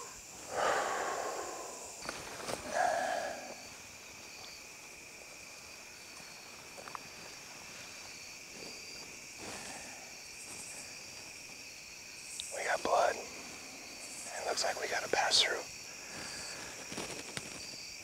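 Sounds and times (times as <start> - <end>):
crickets and insects trilling: 0.0 - 18.0
faint ticks: 12.2 - 12.9.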